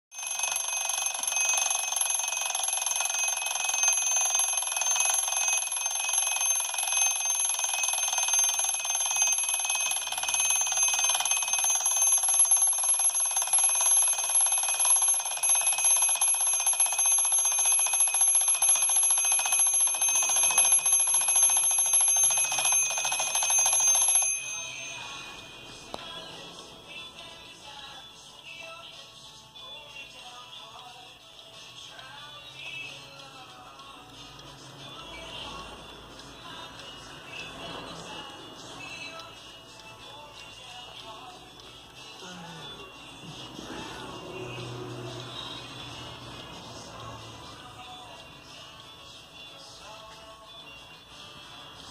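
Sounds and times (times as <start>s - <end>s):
alarm clock bells ringing: 0.1s - 26.0s.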